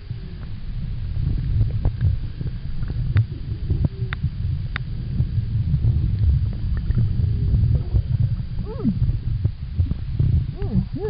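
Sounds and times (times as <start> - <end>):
low rumble of water moving: 0.0 - 11.0.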